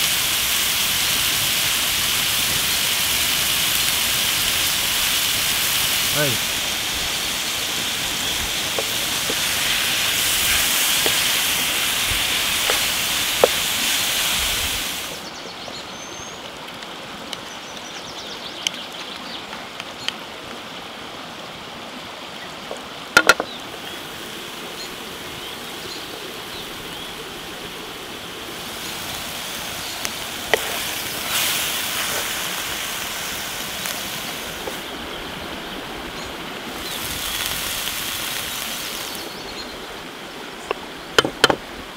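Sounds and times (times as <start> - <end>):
meat sizzling in hot oil: 0.0 - 15.2, 28.4 - 35.3, 36.7 - 39.6
spice paste frying in wok: 0.0 - 15.2, 28.6 - 35.0, 36.7 - 39.5.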